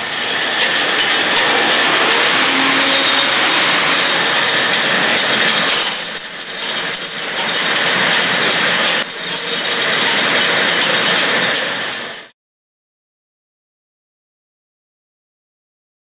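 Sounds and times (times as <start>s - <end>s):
mill machinery clattering: 0.0s - 12.3s.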